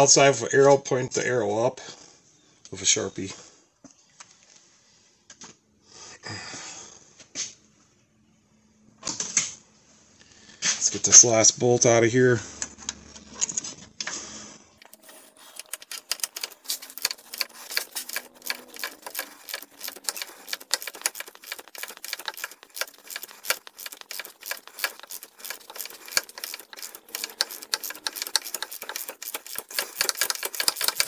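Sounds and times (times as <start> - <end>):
ratchet clicking rapidly: 14.8 - 31.0.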